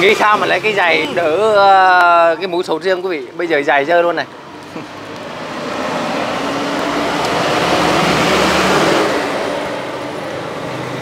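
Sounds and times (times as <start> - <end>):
vehicle driving past: 4.4 - 11.0.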